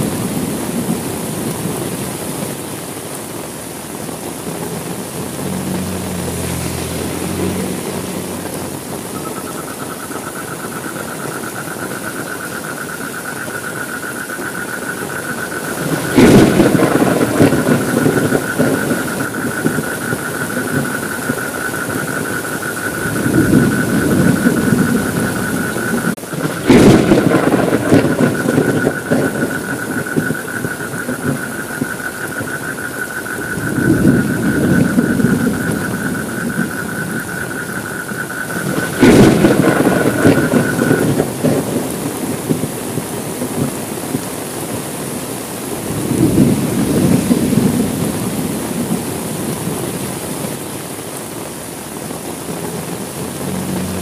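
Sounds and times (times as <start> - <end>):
heavy rain falling: 0.0 - 54.0
low thunder rumble: 4.1 - 50.5
sharp thunderclaps: 15.2 - 44.9, 45.8 - 49.8.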